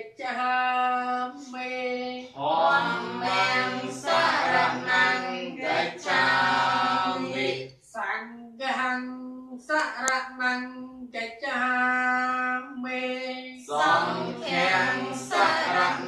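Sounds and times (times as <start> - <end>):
group of voices chanting: 2.4 - 7.7, 13.7 - 16.0.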